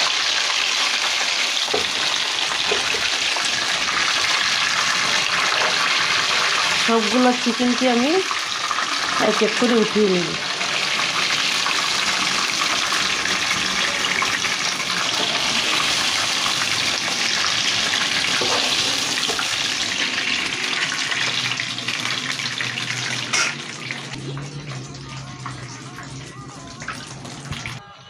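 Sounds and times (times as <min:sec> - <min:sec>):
oil sizzling in frying pan: 0:00.0 - 0:27.8.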